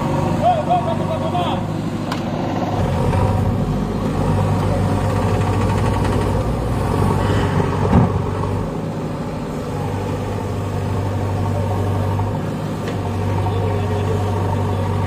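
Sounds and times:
diesel engine running under load: 0.0 - 15.0.

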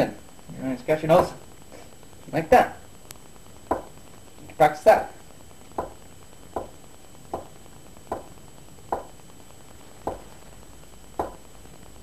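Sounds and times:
wooden handle tapping: 10.0 - 10.3, 11.2 - 11.4.

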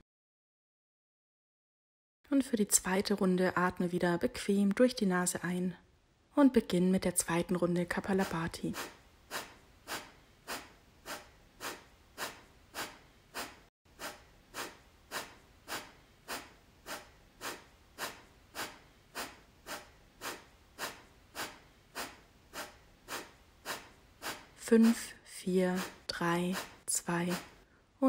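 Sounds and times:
forceful nasal exhalations: 8.2 - 25.1, 25.7 - 27.7.

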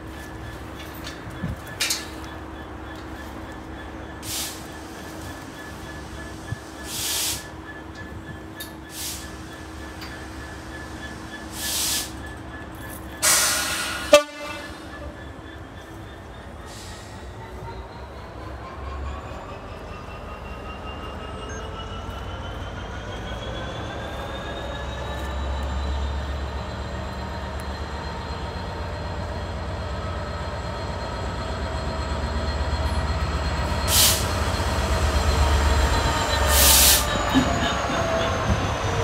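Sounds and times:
diesel locomotive engine throbbing: 0.0 - 39.0
loud hiss: 6.8 - 7.5, 11.5 - 12.2, 33.9 - 34.4.

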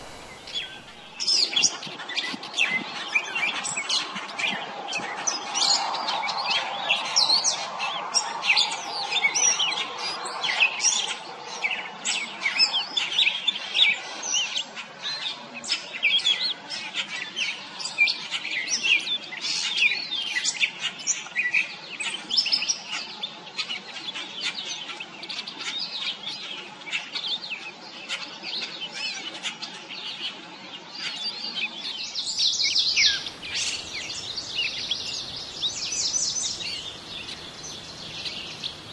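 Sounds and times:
catbird singing: 0.0 - 1.6, 31.0 - 38.9.

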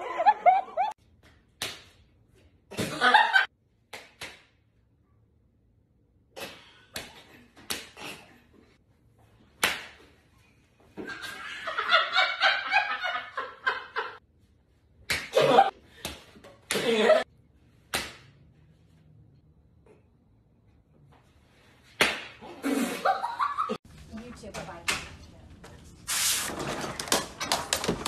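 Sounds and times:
people laughing: 0.0 - 1.0
sharp slaps: 1.5 - 2.0, 3.9 - 4.6, 9.6 - 10.0, 15.1 - 16.9, 17.8 - 18.4, 21.9 - 22.4.

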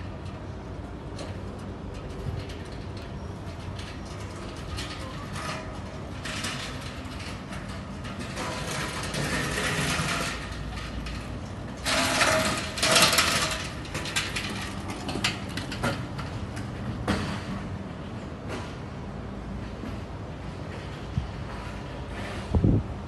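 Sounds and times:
metal trolley rattling over paving: 0.0 - 18.1.

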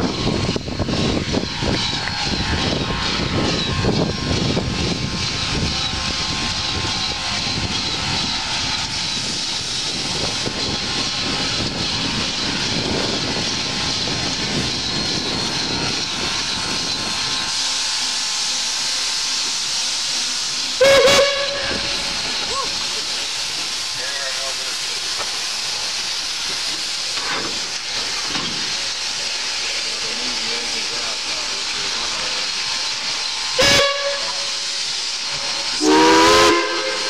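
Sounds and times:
locomotive running gear rumbling: 0.0 - 37.0
steam hissing: 0.0 - 37.0
loud steam whistle: 20.8 - 22.7, 33.5 - 34.8, 35.8 - 37.0.

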